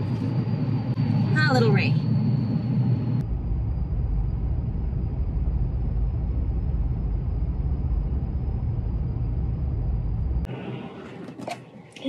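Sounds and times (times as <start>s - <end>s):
car cabin road rumble: 3.2s - 12.0s.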